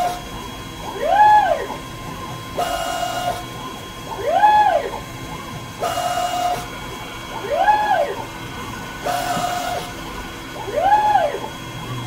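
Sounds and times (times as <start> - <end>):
lathe drive whining: 0.0 - 12.0.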